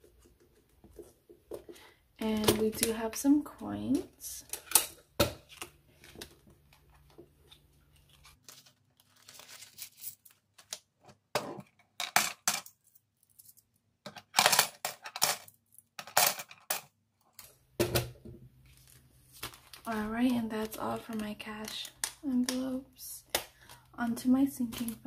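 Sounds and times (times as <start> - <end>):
coins rustling: 9.2 - 10.4
coins clinking and clattering: 14.3 - 16.9.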